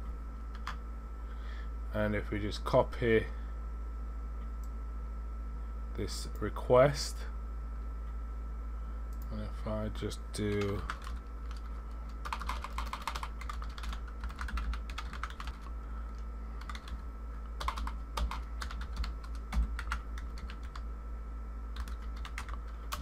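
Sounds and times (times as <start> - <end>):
steady low hum: 0.0 - 23.0
typing on a keyboard: 10.5 - 15.7, 16.6 - 17.0, 17.6 - 20.8, 21.8 - 23.0.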